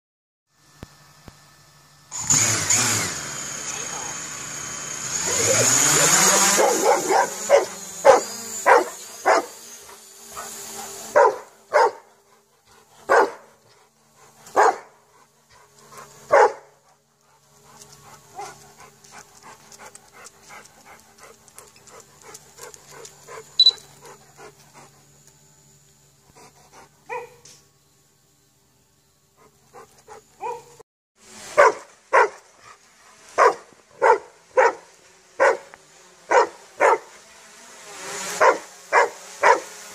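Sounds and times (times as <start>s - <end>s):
drone motors whining: 0.5s - 20.7s
dog barking: 5.3s - 9.6s, 10.3s - 12.1s, 13.1s - 13.6s, 14.5s - 15.0s, 16.3s - 16.8s, 18.3s - 18.6s, 27.1s - 27.4s, 30.4s - 30.8s, 31.6s - 32.4s, 33.4s - 35.7s, 36.3s - 37.1s, 38.4s - 39.8s.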